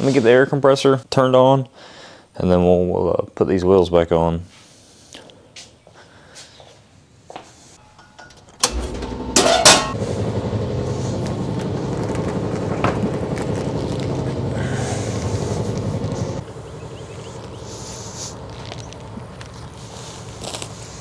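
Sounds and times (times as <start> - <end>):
air compressor running: 8.6 - 18.4
loud noisy bursts: 14.2 - 16.4.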